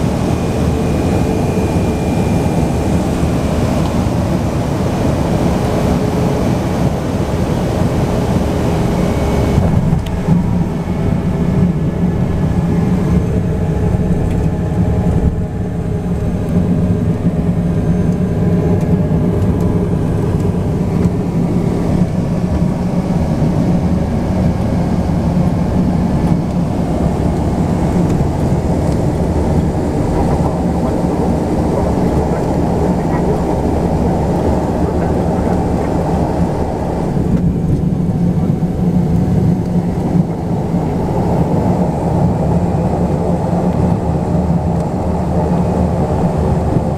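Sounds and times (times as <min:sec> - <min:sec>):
turboprop engine droning: 0:00.0 - 0:46.9.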